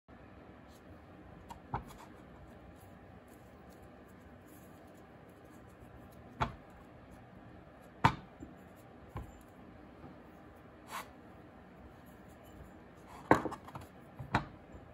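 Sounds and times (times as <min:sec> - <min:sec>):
hands working clay: 0:00.7 - 0:14.9
clay knocking on tray: 0:01.5 - 0:02.0, 0:06.3 - 0:06.8, 0:07.9 - 0:10.2, 0:13.2 - 0:14.9.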